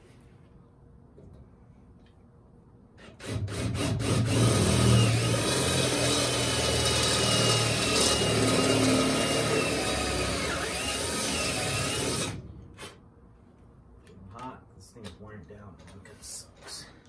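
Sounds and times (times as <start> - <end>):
cordless drill boring through metal: 3.0 - 12.4.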